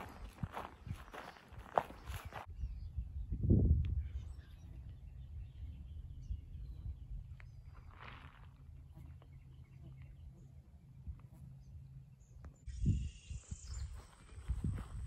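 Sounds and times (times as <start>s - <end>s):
wind on microphone: 0.0s - 8.1s, 12.7s - 15.0s
faint bird chirps: 0.5s - 14.9s.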